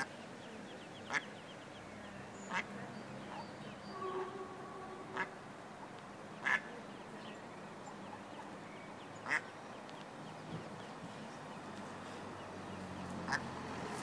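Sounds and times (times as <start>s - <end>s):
duck quacking: 4.0s - 5.4s, 6.4s - 6.7s, 13.3s - 13.5s.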